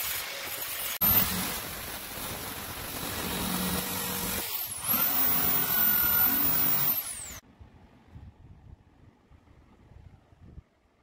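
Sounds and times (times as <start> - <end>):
electric drill motor whine: 1.0 - 7.4.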